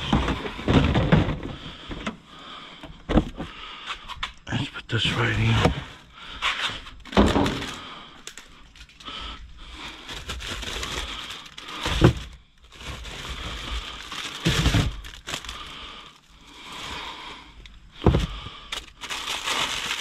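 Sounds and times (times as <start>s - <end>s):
thuds and knocks: 0.0s - 2.1s, 7.1s - 7.8s, 11.8s - 12.4s, 18.0s - 18.5s
plastic packaging crinkling: 7.0s - 17.0s, 18.1s - 20.0s.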